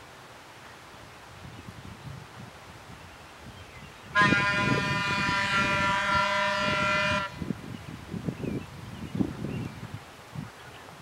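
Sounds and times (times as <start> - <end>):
electric railcar horn blast: 4.1 - 7.5.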